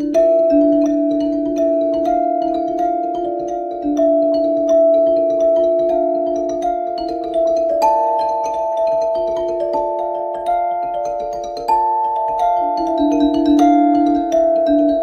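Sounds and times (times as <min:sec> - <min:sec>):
mallet instrument music: 0:00.0 - 0:15.0.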